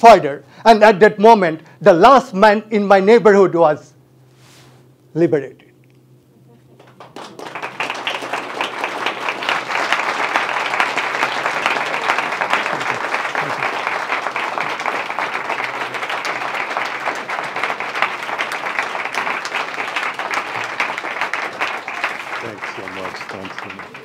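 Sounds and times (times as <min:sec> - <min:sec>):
audience applauding: 0:06.7 - 0:24.0.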